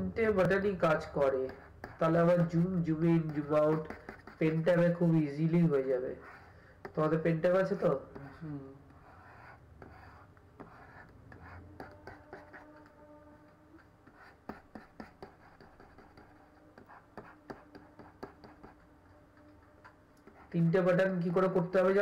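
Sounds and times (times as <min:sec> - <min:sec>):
faint steady hum: 0:00.0 - 0:22.0
stylus tapping and scratching: 0:00.2 - 0:22.0.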